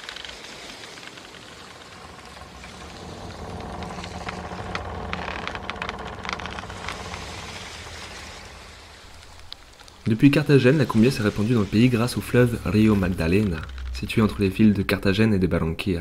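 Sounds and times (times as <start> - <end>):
boat motor humming: 0.6 - 10.0.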